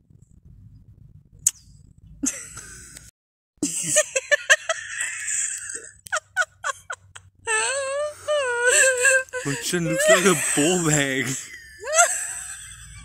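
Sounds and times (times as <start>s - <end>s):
breathy wheezing laughter: 3.6s - 13.0s.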